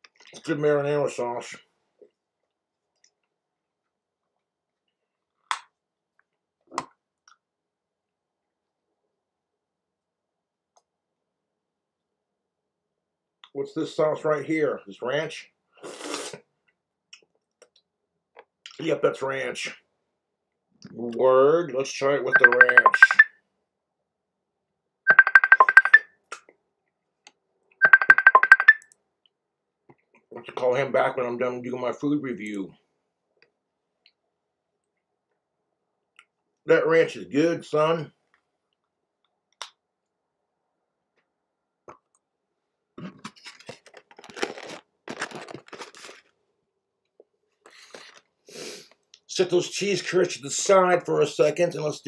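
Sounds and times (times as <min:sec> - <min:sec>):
food crunching while eaten: 0:15.8 - 0:16.4, 0:43.0 - 0:46.3, 0:47.2 - 0:48.3
phone ringtone beeps: 0:22.3 - 0:23.3, 0:25.1 - 0:26.0, 0:27.8 - 0:28.8.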